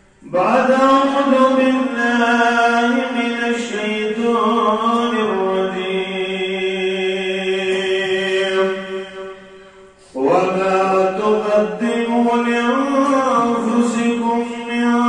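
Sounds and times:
man chanting melodically: 0.2s - 15.0s.

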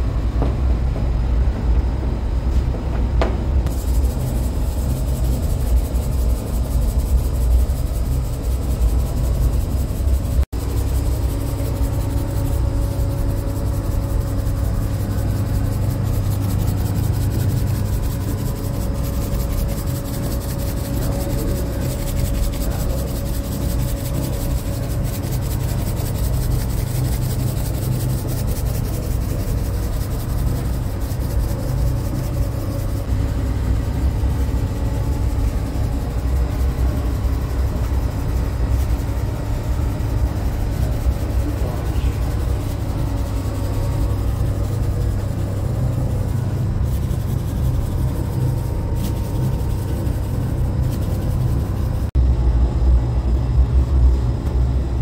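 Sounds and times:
bakery machinery rumble and hum: 0.0s - 55.0s.

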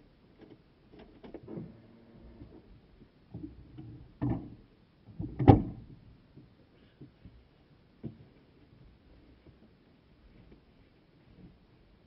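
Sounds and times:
knocks and bumps in car cabin: 3.3s - 6.0s.

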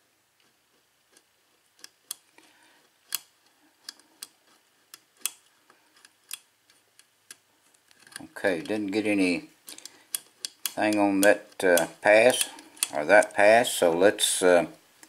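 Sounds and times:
lock pick clicking on pins: 3.0s - 13.5s.

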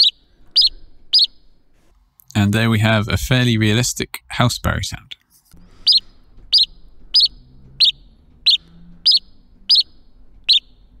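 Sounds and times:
synthesized sparrow chirps: 0.0s - 1.6s, 5.8s - 11.0s.

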